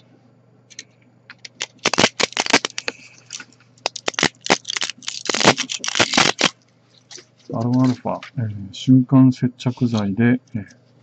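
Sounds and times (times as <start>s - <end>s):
plastic crackling and snapping: 0.7s - 7.9s.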